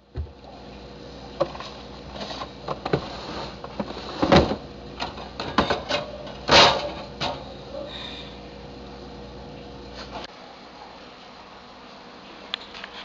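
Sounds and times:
items knocking in refrigerator: 0.1 - 0.4, 2.6 - 7.5.

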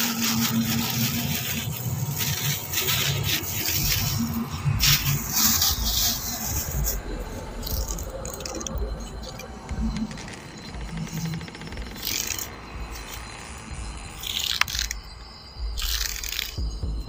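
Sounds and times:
plastic bag crinkling: 0.0 - 7.0
low horror music: 0.0 - 17.0.

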